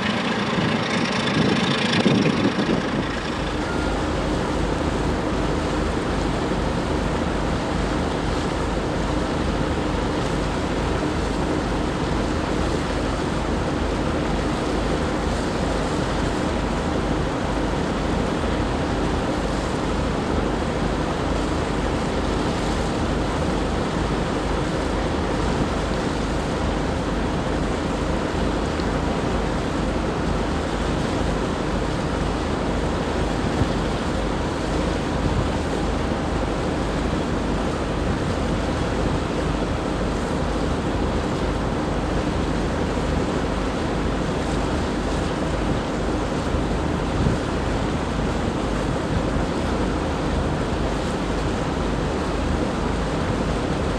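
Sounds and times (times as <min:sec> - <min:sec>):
wind on microphone: 0:00.0 - 0:04.4, 0:33.3 - 0:36.2, 0:45.6 - 0:49.7
moving water: 0:00.0 - 0:53.9.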